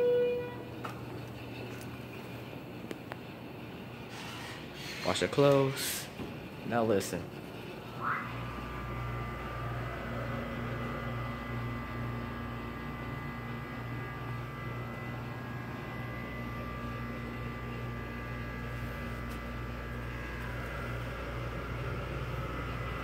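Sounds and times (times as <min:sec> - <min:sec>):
faint high whine: 0:00.0 - 0:01.4, 0:07.7 - 0:23.0
elevator pump motor humming: 0:00.0 - 0:23.0.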